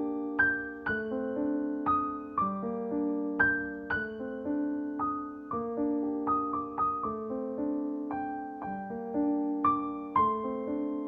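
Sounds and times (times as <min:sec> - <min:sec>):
gentle piano piece: 0:00.0 - 0:11.0.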